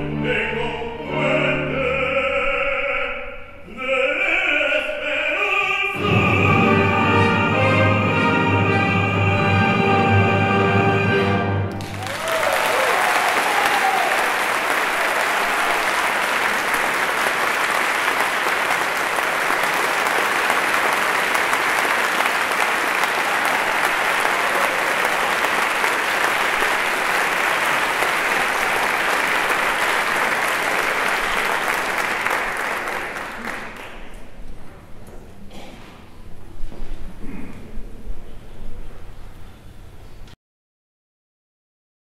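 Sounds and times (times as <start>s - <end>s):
audience applauding: 11.7s - 34.2s.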